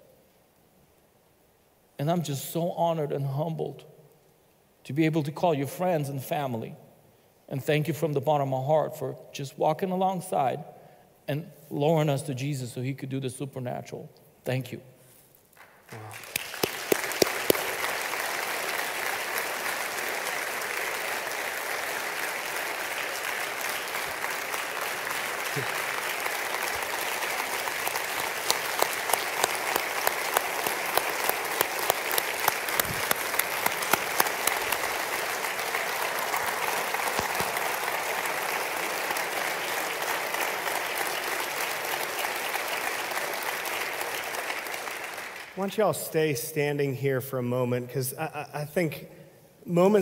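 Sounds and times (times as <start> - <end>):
person clapping steady beat: 15.6 - 45.6
congregation applauding: 15.6 - 46.2.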